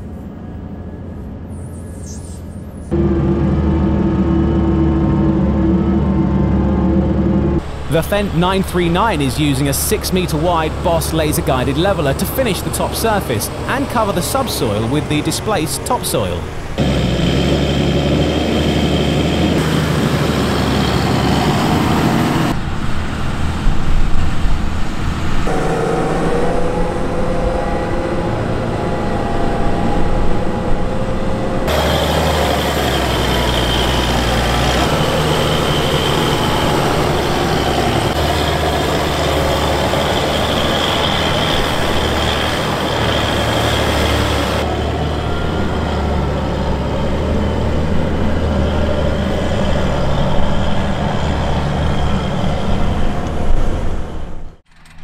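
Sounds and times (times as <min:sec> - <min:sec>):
tractor engines under load: 0:02.9 - 0:22.6, 0:31.6 - 0:55.0.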